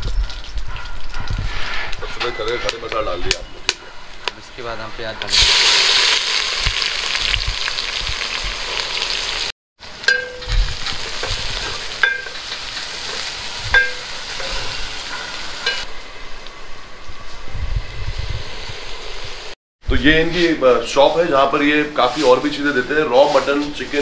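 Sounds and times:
spices sizzling in oil: 0:05.2 - 0:15.9
metal ladle striking pan: 0:10.0 - 0:12.9, 0:13.8 - 0:15.9.

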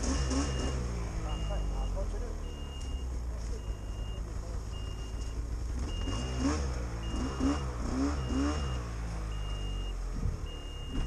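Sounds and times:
snowmobile engines idling: 0:00.0 - 0:07.8
high warning beep: 0:00.0 - 0:11.0.

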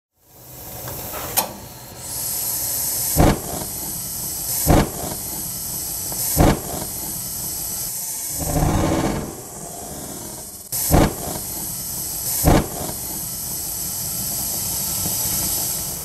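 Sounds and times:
gas hissing: 0:00.2 - 0:16.0
gas burners lighting: 0:00.7 - 0:16.0
short thumps: 0:08.4 - 0:11.5, 0:12.4 - 0:13.0.

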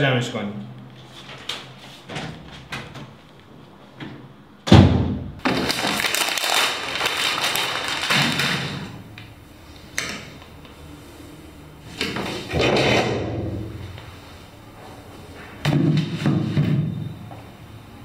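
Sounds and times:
paper folder crumpling: 0:05.4 - 0:09.0
heavy thump: 0:12.5 - 0:14.0.

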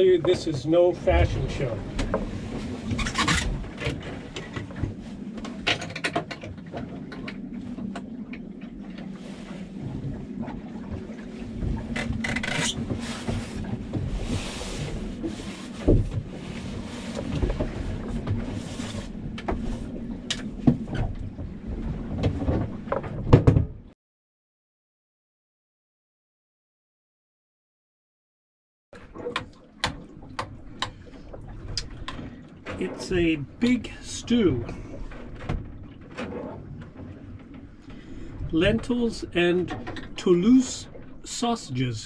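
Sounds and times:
low hum of boat: 0:00.0 - 0:24.0, 0:29.0 - 0:42.0.

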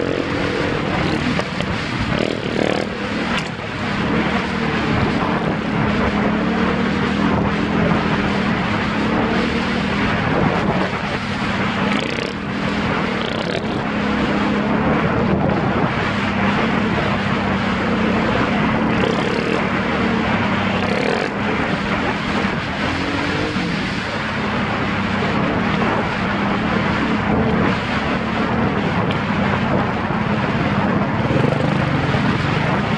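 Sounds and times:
atv engine running: 0:00.0 - 0:32.9
rushing noise: 0:00.0 - 0:32.9.

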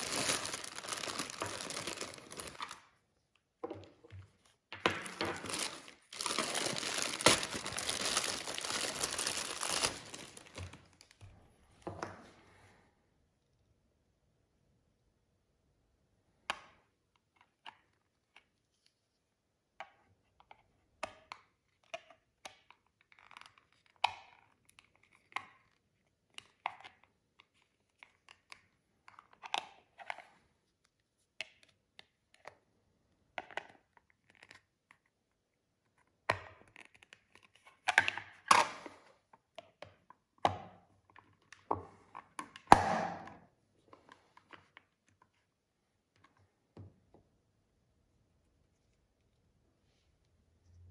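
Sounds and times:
plastic scraping: 0:00.0 - 0:02.8, 0:04.8 - 0:11.0
plastic knocking and rattling: 0:03.6 - 0:07.9.

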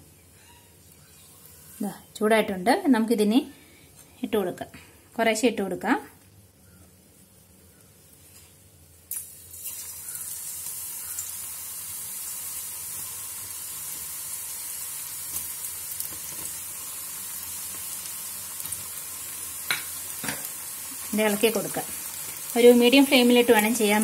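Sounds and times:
slices deep-frying in hot oil: 0:00.2 - 0:02.5, 0:08.3 - 0:24.0.

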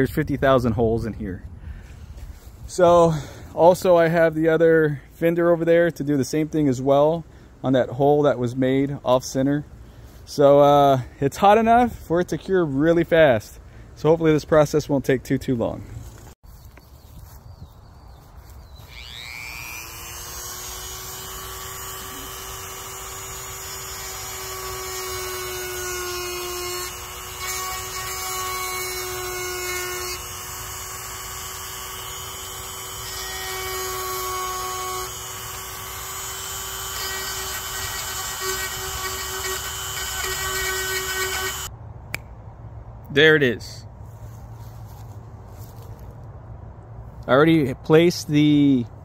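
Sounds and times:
power tool whining: 0:18.8 - 0:41.7.

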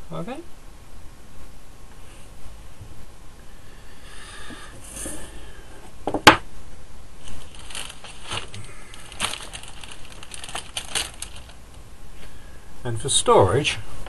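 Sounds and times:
rustling and crinkling sheets: 0:07.2 - 0:12.4.

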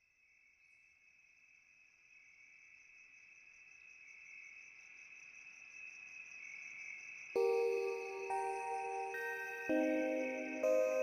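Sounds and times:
high-pitched insect trill: 0:04.1 - 0:11.0.

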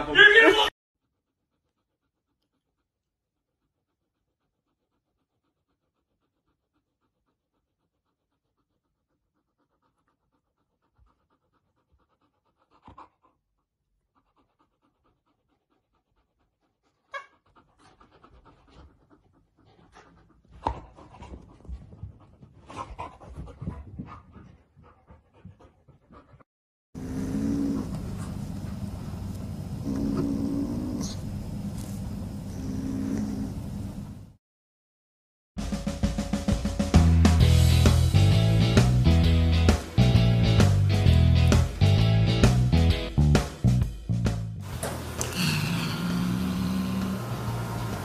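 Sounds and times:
dogs panting: 0:01.0 - 0:32.5, 0:44.7 - 0:48.0.

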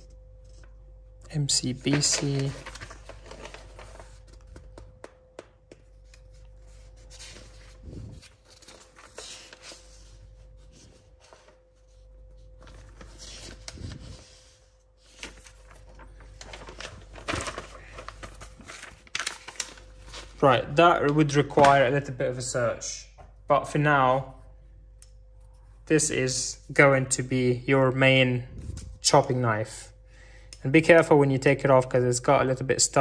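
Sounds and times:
faint steady hum: 0:00.0 - 0:33.0
packaging rustles: 0:01.6 - 0:21.8.

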